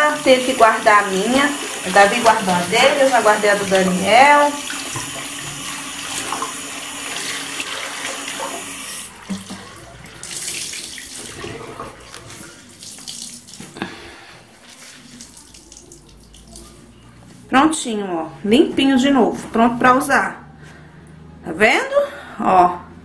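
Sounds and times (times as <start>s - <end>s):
water running from sink tap: 0.0s - 13.9s, 14.6s - 16.8s
splashes and drips: 0.0s - 16.9s
mop pad rubbed under water: 14.5s - 15.4s.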